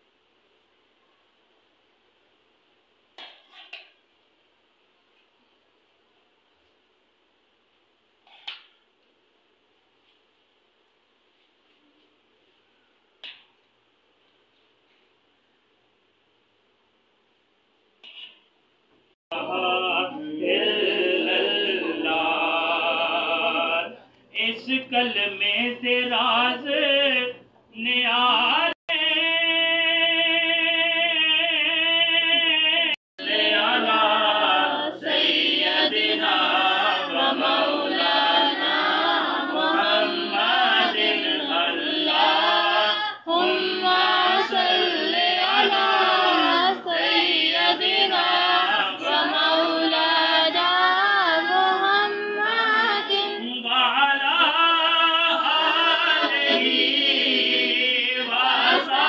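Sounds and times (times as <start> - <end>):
devotional chant singing: 19.3 - 59.0.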